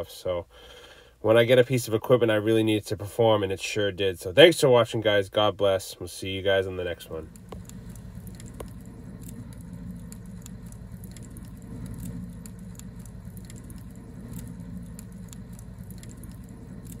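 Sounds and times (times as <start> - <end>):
steady low rumble: 6.8 - 17.0
faint clicks and ticks: 7.1 - 17.0.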